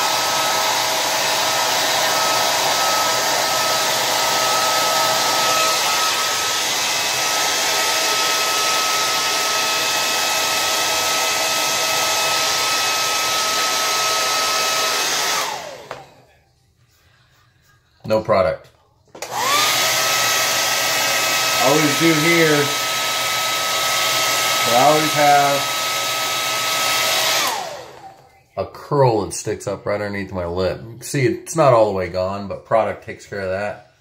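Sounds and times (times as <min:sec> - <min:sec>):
hair dryer blowing with whine: 0:00.0 - 0:16.3, 0:19.2 - 0:28.4.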